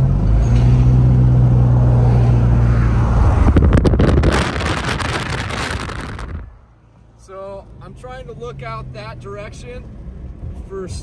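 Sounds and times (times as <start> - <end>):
car engine and road hum: 0.0 - 11.0
wind buffeting microphone: 3.1 - 6.6.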